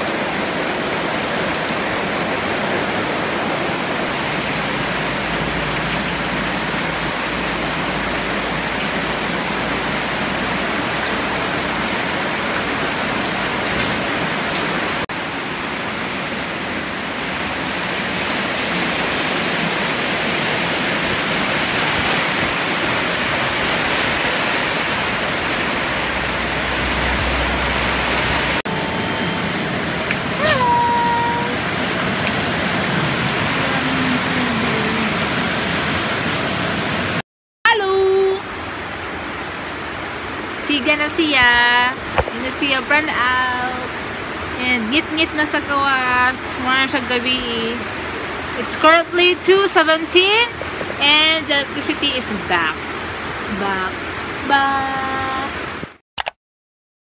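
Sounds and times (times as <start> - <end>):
heavy rain pouring: 0.0 - 37.2, 37.8 - 56.0
kitten mewing: 30.4 - 31.6.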